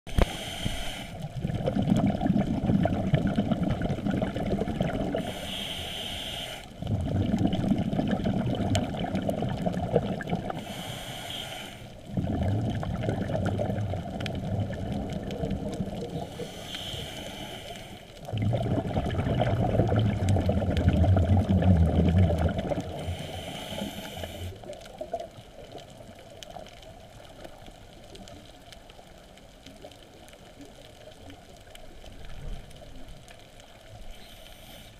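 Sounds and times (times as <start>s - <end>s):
diver inhaling through regulator: 0.1s - 1.4s, 5.1s - 6.8s, 10.5s - 12.5s, 16.2s - 18.1s, 22.8s - 24.7s, 34.1s - 34.9s
exhaled bubbles rumbling underwater: 0.1s - 6.1s, 6.7s - 34.2s
faint bubbling hiss: 0.1s - 34.9s.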